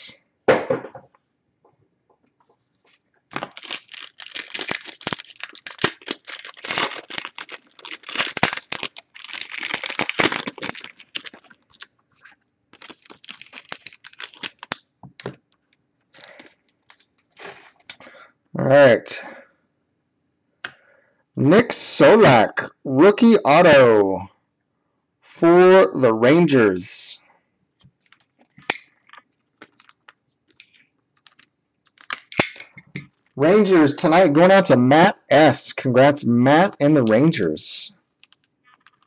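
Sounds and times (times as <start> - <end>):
plastic wrapper crinkling: 2.9 - 18.0, 28.0 - 33.4, 38.2 - 39.0.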